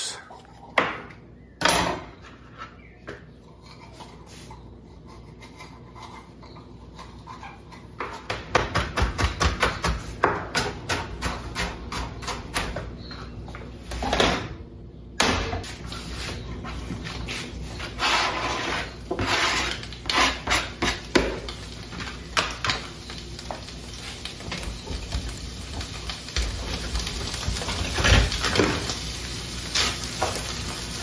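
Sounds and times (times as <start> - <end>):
knife chopping on plastic board: 8.0 - 12.9.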